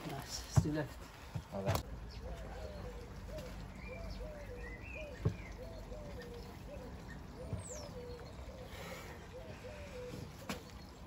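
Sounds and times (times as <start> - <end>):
pigeon cooing: 2.1 - 10.6.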